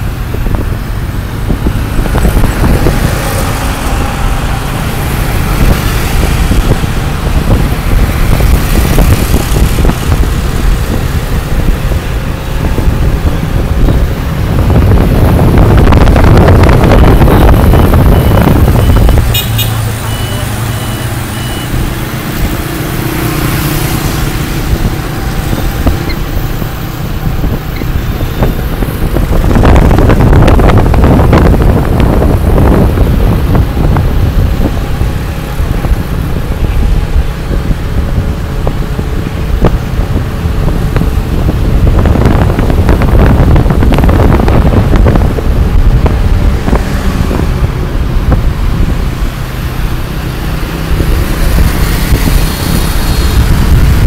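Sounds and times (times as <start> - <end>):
motorbike engine rumble: 0.0 - 54.0
street traffic: 0.0 - 54.0
wind buffeting microphone: 0.0 - 54.0.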